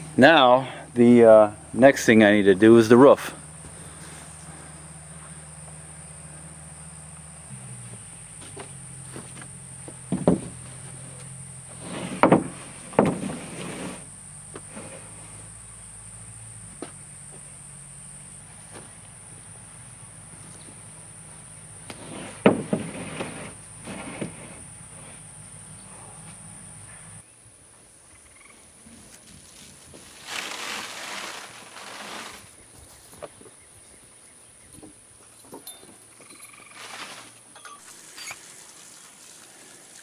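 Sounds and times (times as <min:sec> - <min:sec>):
boards thumping on wooden framing: 0:07.9 - 0:14.8, 0:21.9 - 0:24.6
roofing scraping while unrolled: 0:08.4 - 0:15.4, 0:21.8 - 0:25.2, 0:29.3 - 0:32.6, 0:36.6 - 0:38.5.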